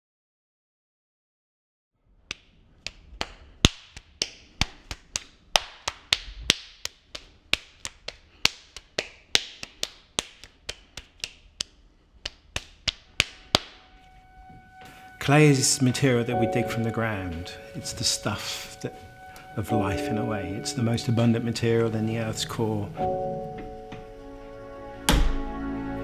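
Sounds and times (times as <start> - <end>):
hands slapping clay: 2.3 - 13.8.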